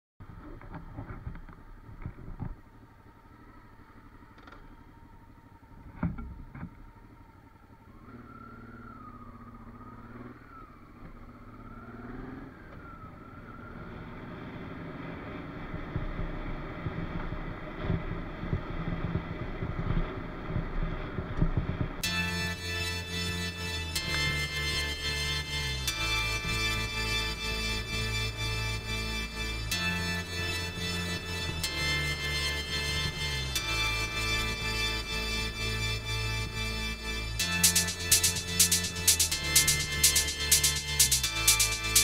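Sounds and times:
rattling rumble over cobblestones: 0:00.2 - 0:09.9, 0:12.6 - 0:22.4
motorcycle engine idling and revving: 0:00.2 - 0:42.0.

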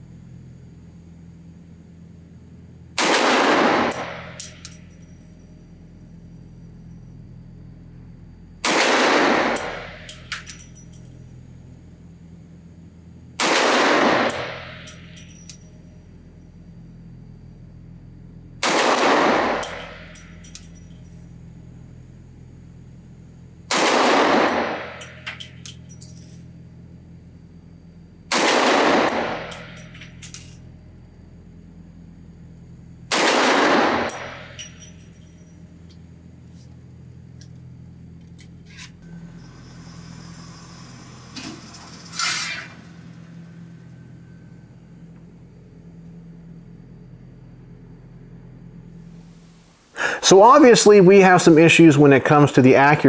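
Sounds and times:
pistol shots echoing: 0:03.0 - 0:04.2, 0:08.6 - 0:10.1, 0:13.4 - 0:14.7, 0:18.6 - 0:20.1, 0:23.7 - 0:25.0, 0:28.3 - 0:29.6, 0:33.1 - 0:34.6
light metallic clinks: 0:04.3 - 0:07.3, 0:09.6 - 0:11.4, 0:14.8 - 0:16.3, 0:19.6 - 0:21.4, 0:24.7 - 0:26.6, 0:29.4 - 0:30.7, 0:34.1 - 0:36.0.

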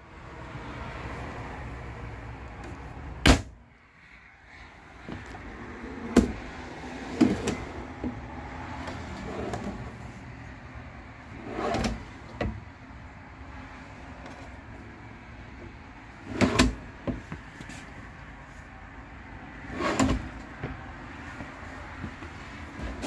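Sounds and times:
drawer rolling on metal slides: 0:07.0 - 0:08.2, 0:08.8 - 0:10.2, 0:11.2 - 0:12.6, 0:16.1 - 0:16.9, 0:19.6 - 0:20.8, 0:22.3 - 0:23.0.

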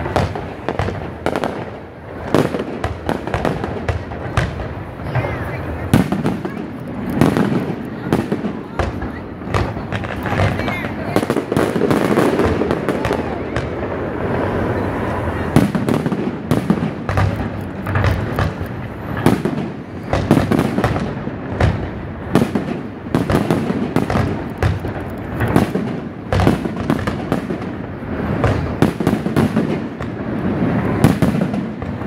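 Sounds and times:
firework shells bursting: 0:15.4 - 0:32.0.

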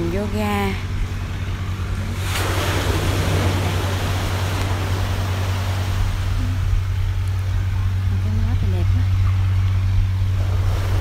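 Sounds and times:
steady low hum: 0:00.0 - 0:11.0
surf on rocky shore: 0:01.8 - 0:08.1, 0:10.2 - 0:11.0.

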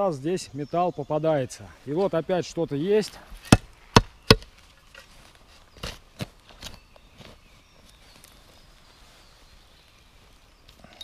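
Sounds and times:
hand rustling through earth: 0:04.5 - 0:10.9.

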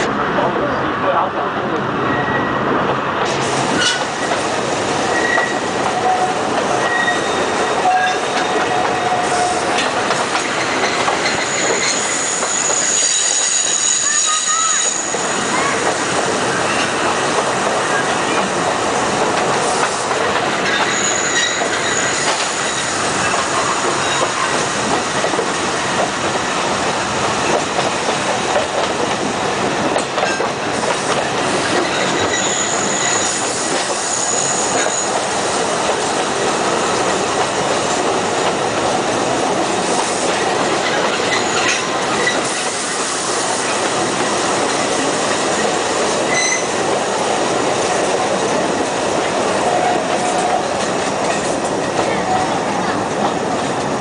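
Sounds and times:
train wheels rumbling on rails: 0:00.0 - 0:54.0
high-pitched wheel squeal: 0:05.1 - 0:08.2, 0:11.2 - 0:15.7, 0:20.8 - 0:22.9, 0:31.9 - 0:33.4, 0:34.0 - 0:35.2, 0:46.3 - 0:46.7.

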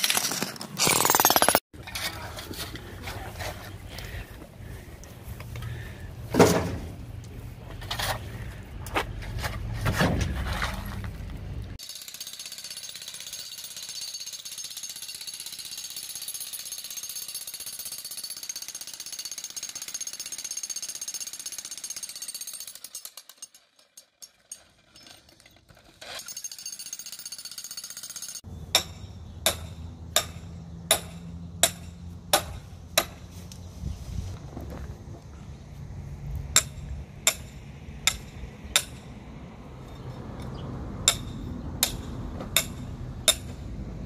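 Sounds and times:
hammer striking wooden stake: 0:28.7 - 0:33.3, 0:36.5 - 0:39.1, 0:41.0 - 0:43.6.

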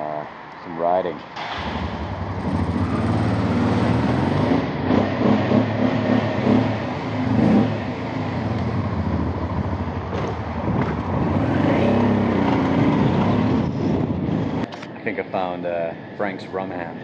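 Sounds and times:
wind and road noise: 0:00.0 - 0:17.0
motorcycle engine revving: 0:01.4 - 0:14.6.

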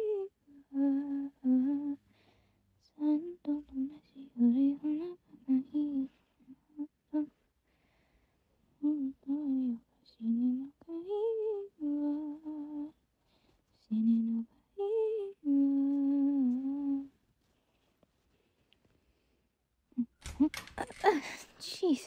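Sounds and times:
woman humming: 0:00.0 - 0:02.0, 0:13.9 - 0:17.1.

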